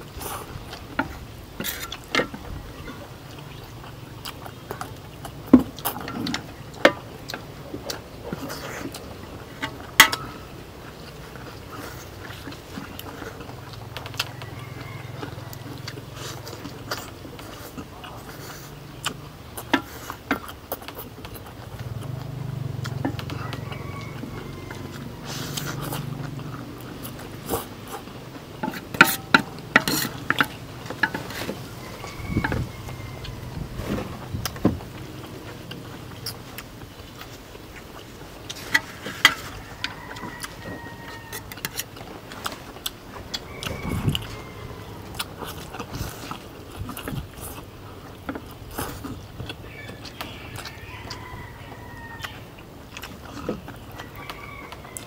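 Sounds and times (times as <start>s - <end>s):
people chewing: 0.0s - 55.0s
utensils clinking against plates: 25.2s - 33.1s.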